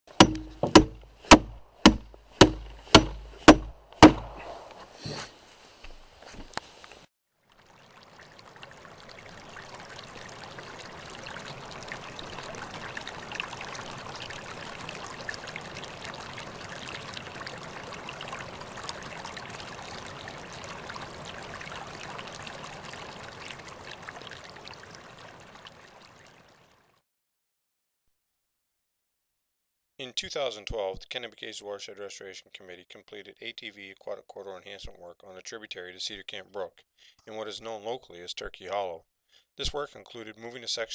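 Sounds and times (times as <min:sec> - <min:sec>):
stream trickling: 0:00.1 - 0:04.8, 0:07.3 - 0:27.0
hammer driving nail into wood: 0:00.2 - 0:04.4.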